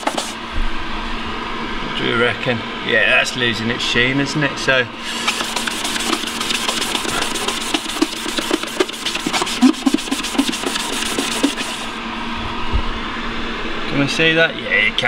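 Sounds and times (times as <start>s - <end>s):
scrubbing pad on metal: 0.0s - 0.4s, 5.1s - 12.0s.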